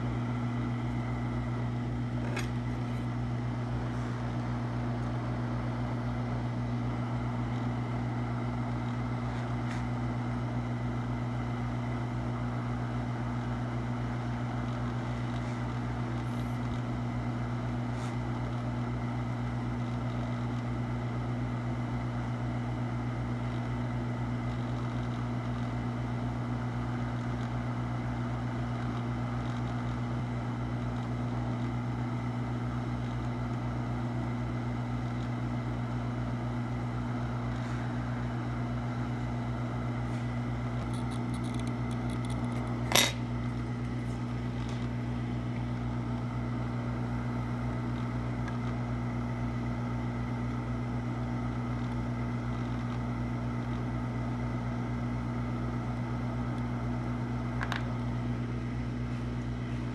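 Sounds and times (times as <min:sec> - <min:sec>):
hot air blower hissing: 0:00.0 - 0:10.3, 0:36.7 - 0:40.9
low even hum: 0:00.0 - 0:59.9.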